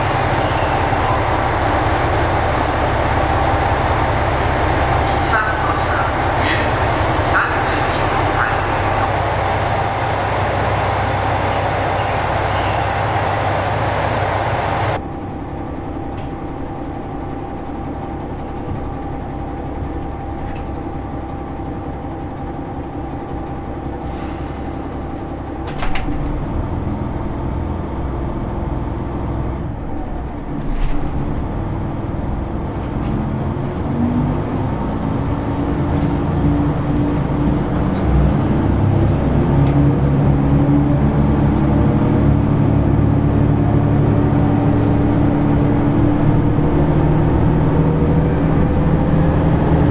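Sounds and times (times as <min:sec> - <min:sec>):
steady whine: 0:00.0 - 0:23.9
diesel railcar engine rumble: 0:00.0 - 0:49.9
click: 0:16.1 - 0:16.4.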